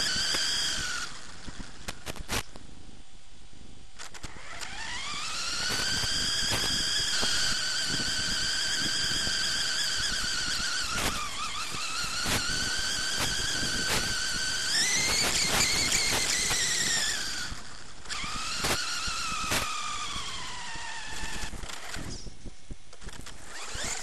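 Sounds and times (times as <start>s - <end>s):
high-pitched electric motor whine: 0.0s - 24.0s.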